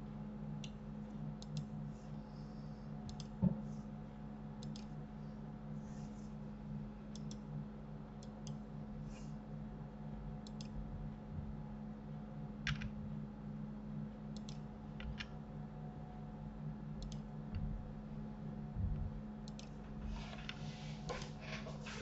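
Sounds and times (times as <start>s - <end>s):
low electrical hum: 0.0s - 22.0s
computer mouse clicks: 1.4s - 1.7s, 3.1s - 3.4s, 4.6s - 4.9s, 7.1s - 7.4s, 10.4s - 10.8s, 14.4s - 15.3s, 17.0s - 17.3s, 19.4s - 19.8s.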